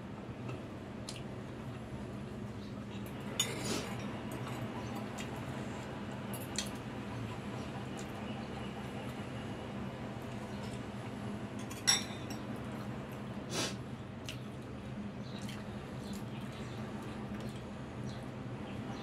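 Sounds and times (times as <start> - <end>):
cutlery clinking on bowl: 3.1 - 4.7, 11.6 - 12.5.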